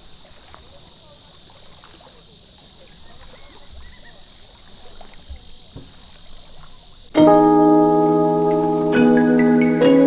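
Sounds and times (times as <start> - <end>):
high-pitched insect chorus: 0.0 - 10.0
faint bird chirps: 2.8 - 7.2.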